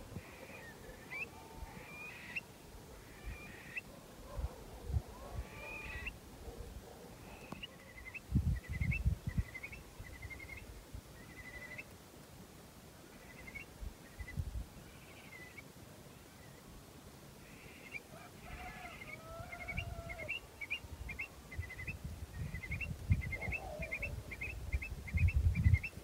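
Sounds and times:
birds calling with trills: 0:00.2 - 0:03.9, 0:05.4 - 0:06.2, 0:17.5 - 0:26.0.

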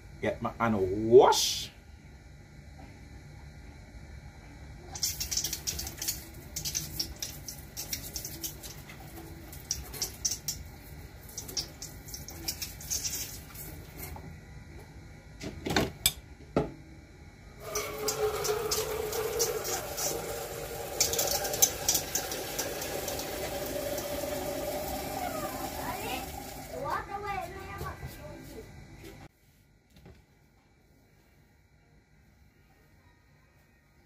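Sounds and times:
water splashing in a sink: 0:04.9 - 0:10.6, 0:11.2 - 0:13.8, 0:17.6 - 0:26.8.

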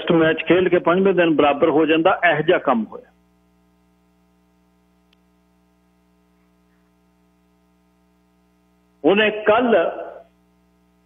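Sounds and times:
faint electrical hum: 0:00.0 - 0:11.0
faint click: 0:05.0 - 0:05.3.

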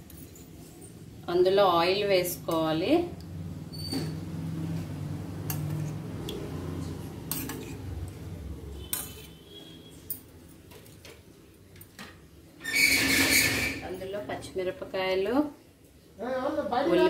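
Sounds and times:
metal spoon clinking on steel: 0:07.3 - 0:07.8, 0:08.8 - 0:09.3.

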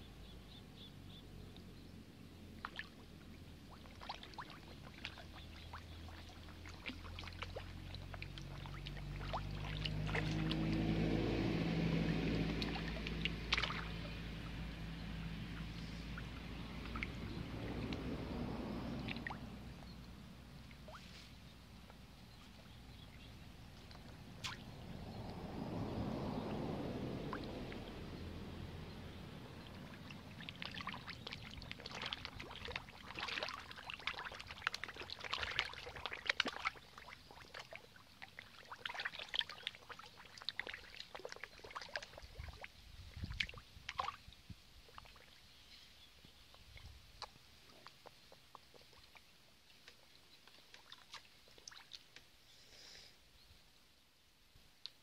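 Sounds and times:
fish splashing at water surface: 0:02.6 - 0:19.7, 0:23.5 - 0:44.3, 0:47.2 - 0:52.2
water rushing: 0:04.0 - 0:19.8, 0:23.5 - 0:42.6.

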